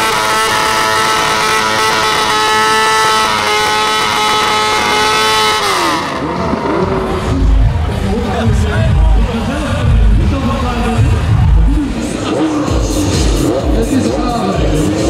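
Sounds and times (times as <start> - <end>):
motorcycle engine high revs: 0.0 - 7.8.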